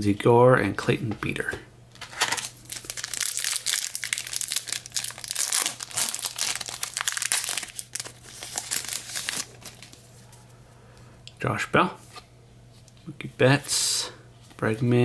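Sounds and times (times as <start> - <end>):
wrapper crinkling torn open: 2.0 - 10.0.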